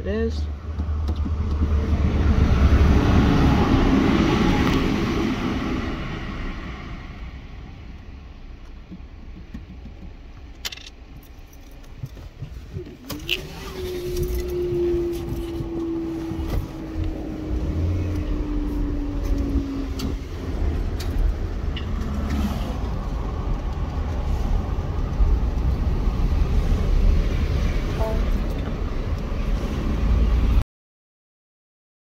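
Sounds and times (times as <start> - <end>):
car engine and road noise: 0.0 - 30.6
tone falling in pitch: 28.0 - 28.4.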